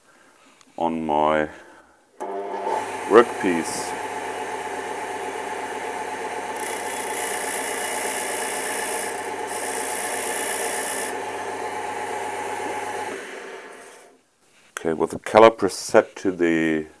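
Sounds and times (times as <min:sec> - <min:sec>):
lathe motor hum: 0:02.2 - 0:14.2
tool scraping spinning wood: 0:02.2 - 0:14.2.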